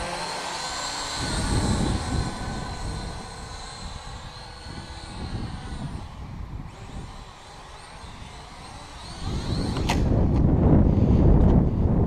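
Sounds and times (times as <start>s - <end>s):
drone propellers whining: 0.0s - 12.0s.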